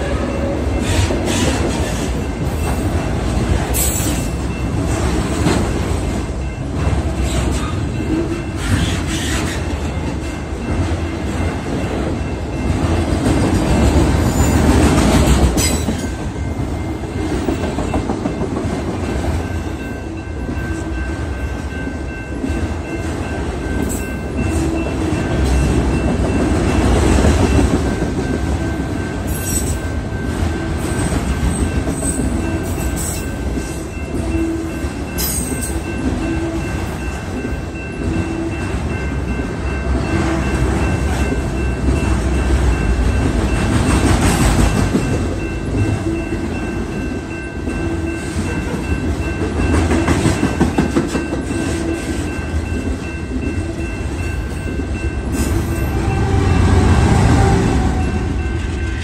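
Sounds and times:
crossing warning bell ringing: 0.0 - 59.0
train wheels rumbling on rails: 0.0 - 59.0.

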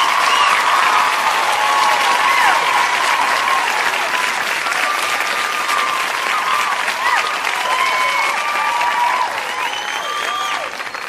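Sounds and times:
crowd clapping: 0.0 - 11.0.

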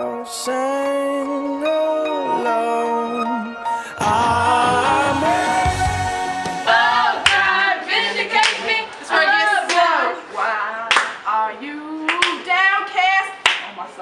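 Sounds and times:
background music: 0.0 - 8.1.

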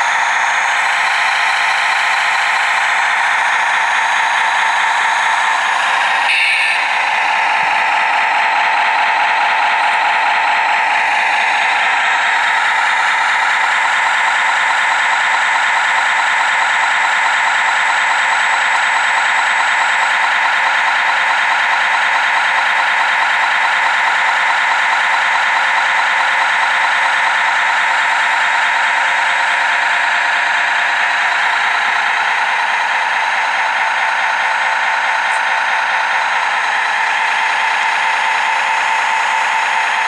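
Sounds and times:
simulated truck engine idling: 0.0 - 40.0.

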